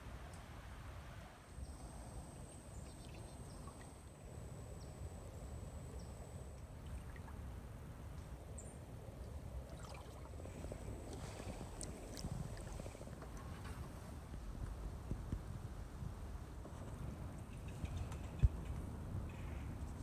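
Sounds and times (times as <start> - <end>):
low steady rumble: 0.0 - 20.0.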